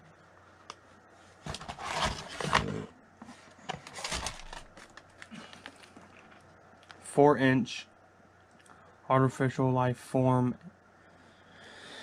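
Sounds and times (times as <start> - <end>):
plastic packaging crinkling: 3.8 - 6.4.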